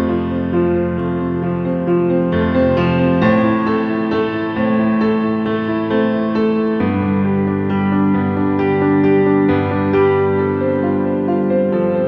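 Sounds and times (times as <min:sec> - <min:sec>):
slow instrumental music: 0:00.0 - 0:12.0.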